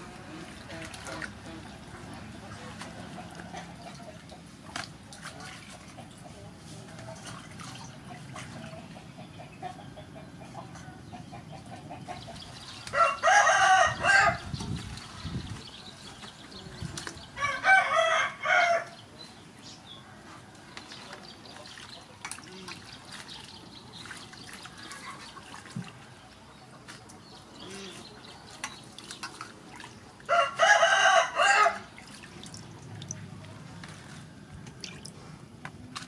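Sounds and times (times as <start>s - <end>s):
rooster crowing: 12.9s - 14.4s, 17.4s - 19.0s, 30.3s - 31.9s.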